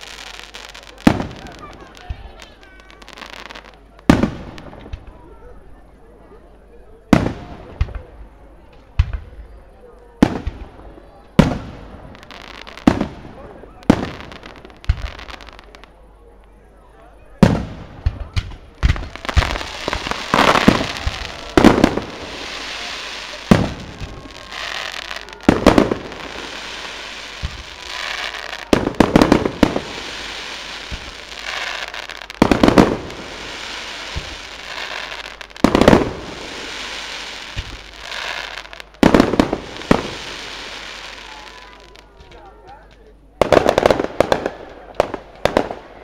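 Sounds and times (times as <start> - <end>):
fireworks crackling and hissing: 0.0 - 46.0
firework shells bursting: 17.4 - 41.0.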